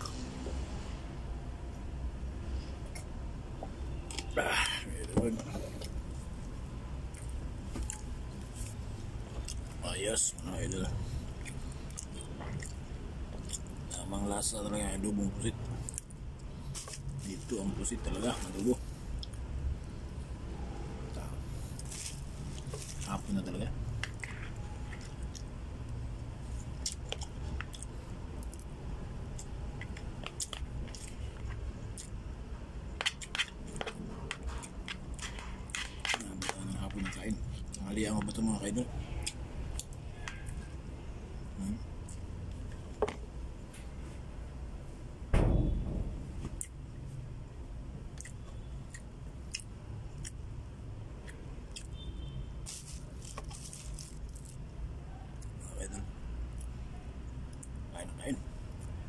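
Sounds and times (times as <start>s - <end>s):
steady low hum: 0.0s - 51.8s
person chewing food: 2.8s - 9.8s, 11.2s - 13.8s, 21.6s - 25.6s, 26.5s - 28.7s, 29.3s - 32.2s, 33.0s - 40.7s, 48.1s - 50.4s, 51.2s - 52.0s
loud thump: 45.3s - 46.4s.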